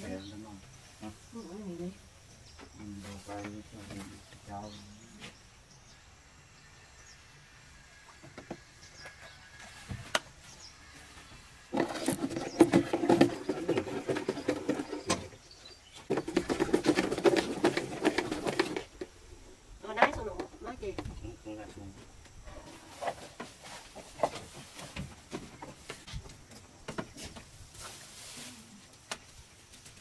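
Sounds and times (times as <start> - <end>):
stick stirring paint in plastic can: 11.7 - 15.3.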